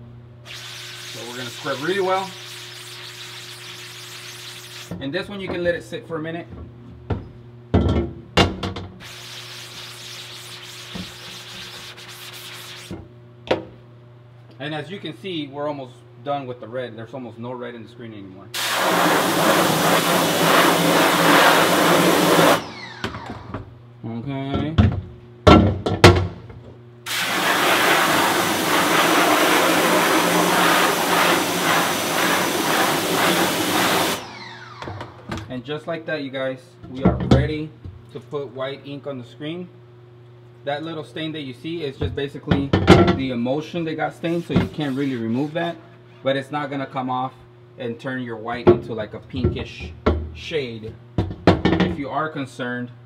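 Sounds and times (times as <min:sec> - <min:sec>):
water jet spray hissing: 0:00.5 - 0:04.9, 0:09.0 - 0:12.9, 0:18.6 - 0:22.7, 0:27.1 - 0:34.4
brush scrubbing mesh: 0:09.1 - 0:13.0.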